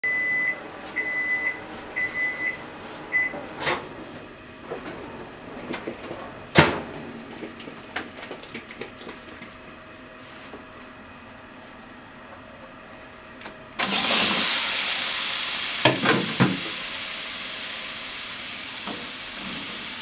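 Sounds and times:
kitchen appliance beeping: 0.0s - 3.4s, 13.8s - 14.6s.

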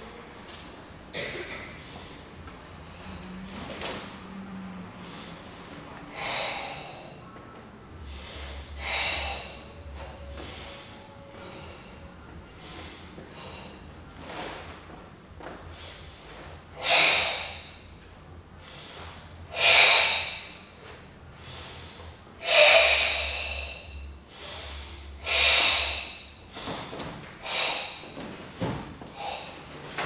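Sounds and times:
loud forced breathing: 1.7s - 14.8s, 15.6s - 30.0s.

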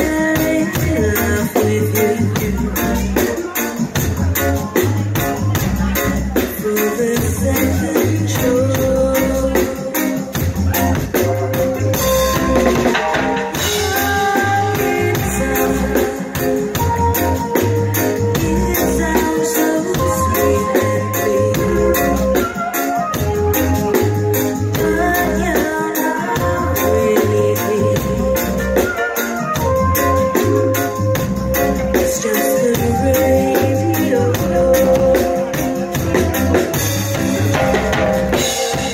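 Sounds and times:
woman singing: 0.0s - 3.6s, 5.8s - 10.4s, 13.5s - 23.3s, 24.5s - 29.5s, 31.6s - 36.8s
reggae band playing: 0.0s - 38.9s.

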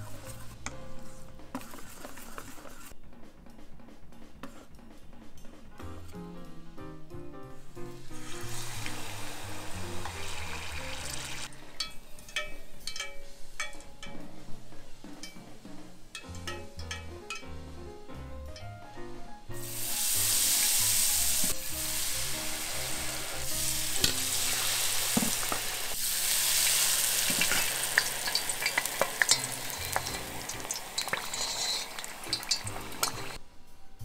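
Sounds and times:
batter sizzling in hot oil: 8.0s - 13.0s, 19.6s - 33.4s
oil popping and crackling: 8.2s - 13.8s, 21.4s - 33.4s.

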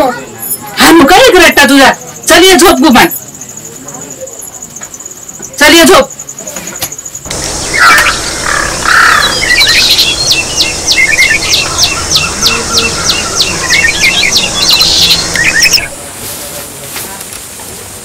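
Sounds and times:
birds singing: 1.4s - 16.0s
insect buzz: 2.0s - 16.0s.

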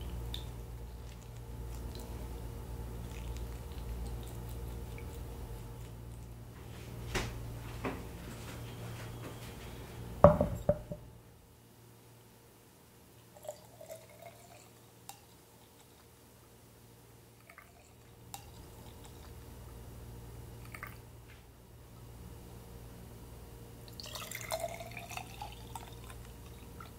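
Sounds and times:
liquid trickling: 3.0s - 6.3s, 13.4s - 16.1s, 17.4s - 19.4s, 23.9s - 26.9s
loud knocks: 10.2s - 11.0s.

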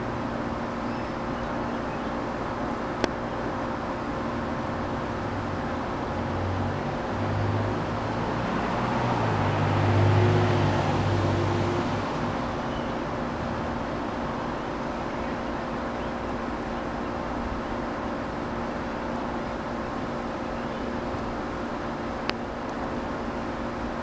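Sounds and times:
outdoor background hum: 0.0s - 24.0s
passing road vehicle drone: 4.8s - 14.8s.

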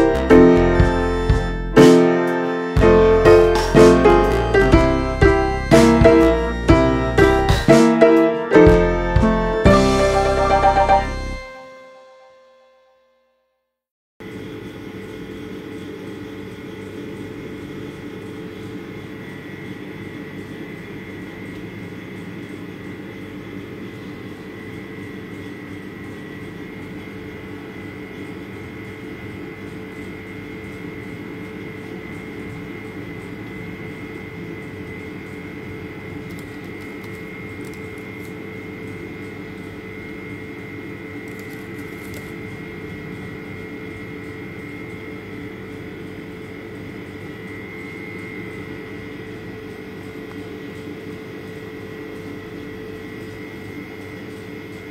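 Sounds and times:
machine hum: 0.0s - 12.4s
high whine: 0.0s - 12.9s.

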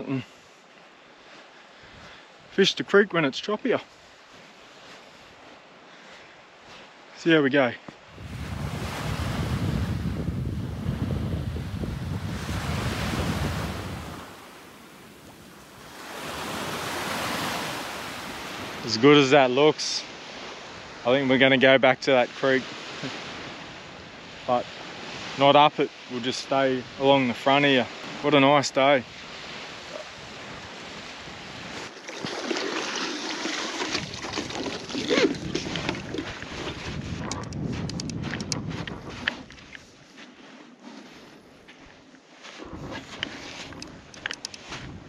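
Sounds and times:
waves washing onto shore: 0.0s - 45.0s
wind rumble on microphone: 8.1s - 17.0s, 33.9s - 39.8s, 42.5s - 45.0s
water sloshing and splashing: 30.0s - 37.5s.

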